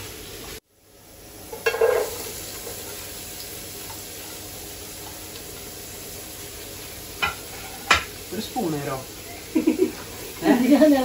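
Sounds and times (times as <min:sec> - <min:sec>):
onions sizzling in hot oil: 0:00.0 - 0:11.0
onions clattering into pot: 0:01.5 - 0:02.8.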